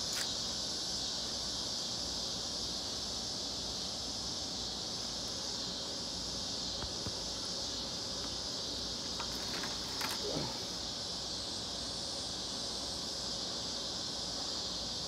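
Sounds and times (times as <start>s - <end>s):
insect chorus: 0.0s - 15.0s.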